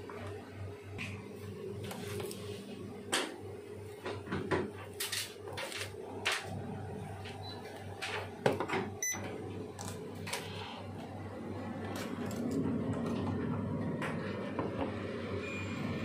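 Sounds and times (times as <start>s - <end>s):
steady low hum: 6.0s - 15.4s.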